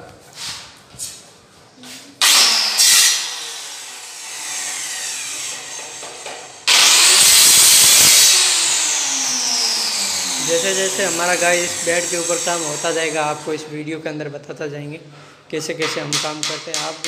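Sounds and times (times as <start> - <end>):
electric power saw whining: 2.2 - 13.6.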